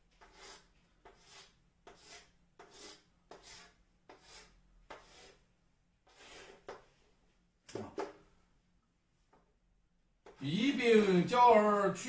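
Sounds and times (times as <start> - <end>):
chalk strokes on blackboard: 0.1 - 6.9.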